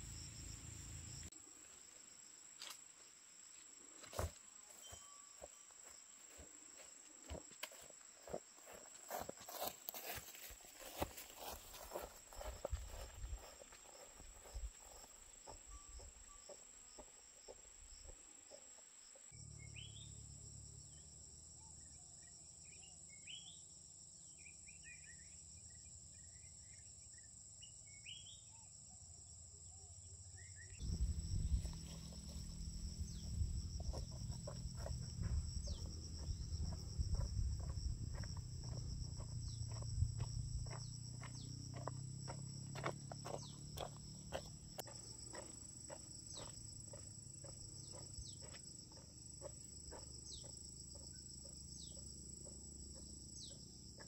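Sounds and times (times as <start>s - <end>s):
insects droning: 0.0s - 54.0s
small birds chirping: 30.4s - 39.8s.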